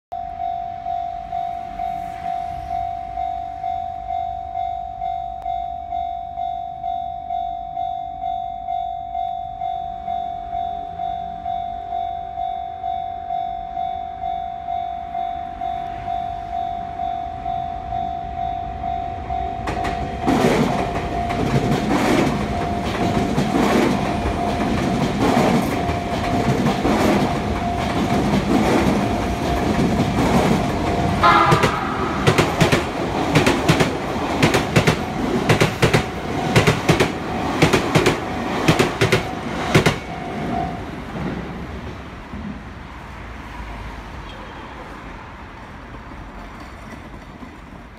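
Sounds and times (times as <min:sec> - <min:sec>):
level-crossing alarm ringing: 0:00.2 - 0:29.8, 0:30.6 - 0:38.4
train passing on rails: 0:00.2 - 0:47.9
wheels clacking over rail joints: 0:19.6 - 0:40.6, 0:46.3 - 0:47.9.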